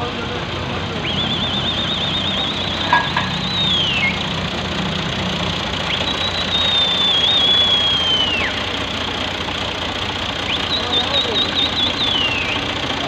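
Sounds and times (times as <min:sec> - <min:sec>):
tractor engine idling: 0:00.0 - 0:13.0
warbling whistle-like tone: 0:01.0 - 0:04.4, 0:05.8 - 0:08.7.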